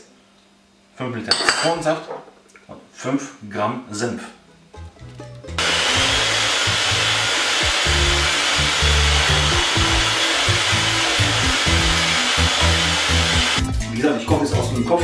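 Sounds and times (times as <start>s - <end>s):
electric hand mixer whining: 5.6s - 13.6s.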